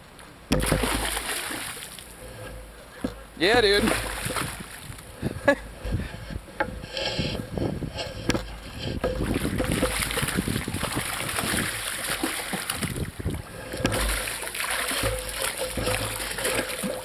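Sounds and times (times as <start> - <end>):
fish thrashing and splashing water: 0.5 - 2.7, 3.7 - 5.1, 9.1 - 17.0.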